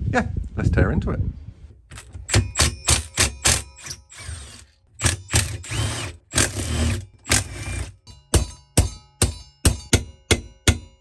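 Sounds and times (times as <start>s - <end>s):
cordless impact tool hammering: 2.2s - 11.0s.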